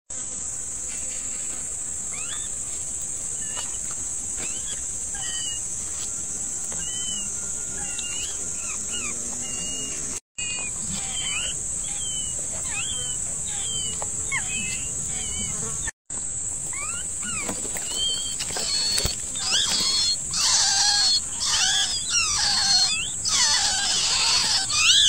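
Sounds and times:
high-pitched insect buzz: 0:00.1 - 0:25.0.

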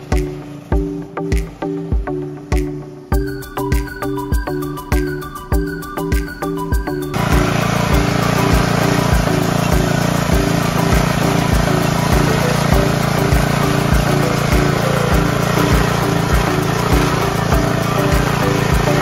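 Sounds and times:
small petrol engine running: 0:07.1 - 0:19.0
tiller tines churning soil: 0:07.1 - 0:19.0
low engine knock: 0:07.2 - 0:19.0.

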